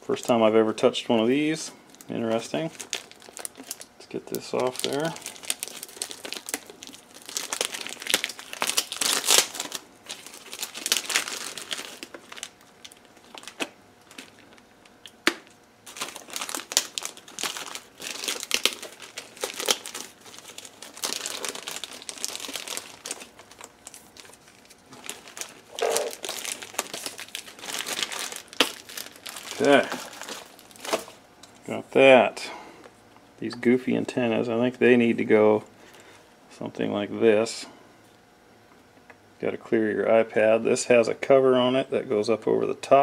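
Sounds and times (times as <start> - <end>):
plastic wrapping crinkling: 1.9 - 31.2.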